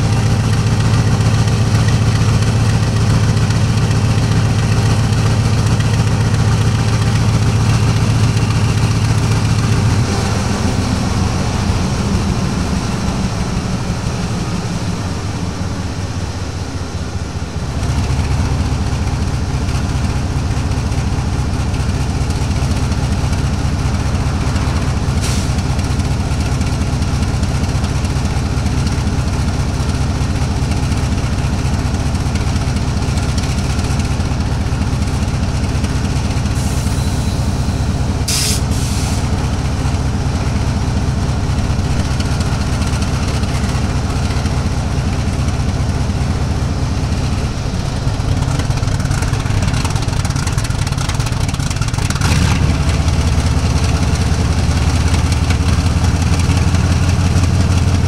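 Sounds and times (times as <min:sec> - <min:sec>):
locomotive engine rumble: 0:00.0 - 0:58.0
air hiss: 0:38.3 - 0:39.3.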